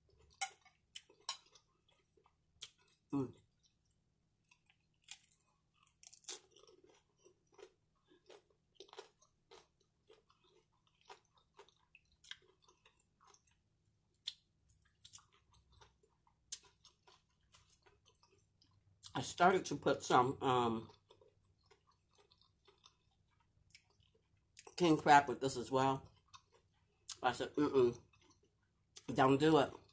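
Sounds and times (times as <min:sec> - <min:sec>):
person chewing crunchy chips: 0:00.0 - 0:29.9.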